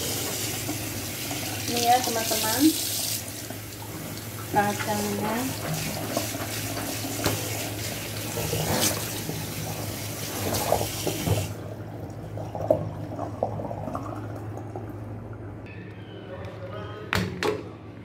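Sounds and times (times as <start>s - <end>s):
tap running into sink: 5.6s - 7.6s, 10.4s - 11.5s.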